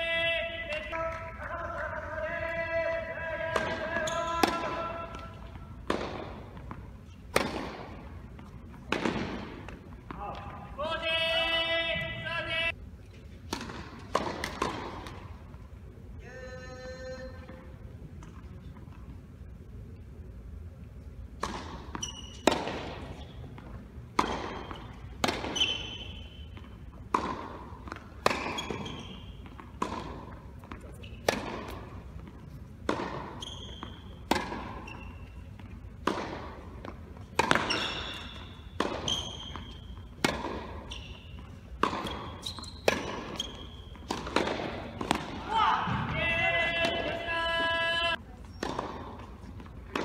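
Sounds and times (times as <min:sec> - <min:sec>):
tennis ball bouncing: 0:03.4 - 0:10.5, 0:13.4 - 0:15.6, 0:21.3 - 0:47.3, 0:48.1 - 0:50.0
tennis racket striking ball: 0:03.5 - 0:10.4, 0:13.4 - 0:15.3, 0:21.4 - 0:47.3, 0:48.5 - 0:50.0
shoes squeaking on court: 0:03.8 - 0:10.4, 0:21.5 - 0:45.2, 0:48.2 - 0:50.0.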